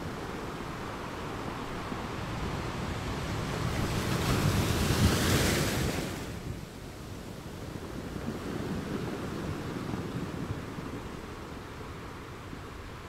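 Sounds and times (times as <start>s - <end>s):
ocean surf breaking on beach: 0.0s - 13.0s.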